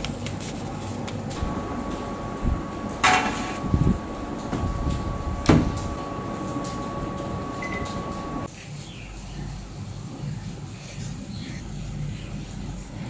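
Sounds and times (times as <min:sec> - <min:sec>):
thin steady whine: 0:01.3 - 0:08.5
oven door shutting: 0:02.5 - 0:08.5
metal pan set into oven: 0:03.0 - 0:03.6.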